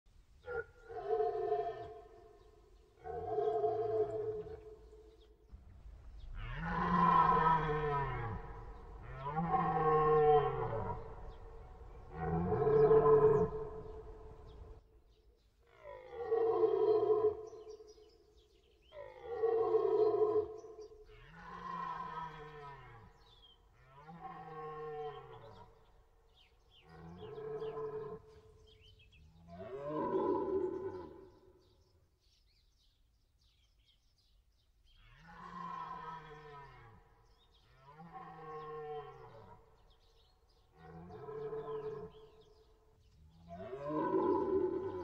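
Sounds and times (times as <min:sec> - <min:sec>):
deer stag roaring: 0:06.2 - 0:14.7, 0:43.5 - 0:45.0
small birds chirping: 0:07.6 - 0:15.5.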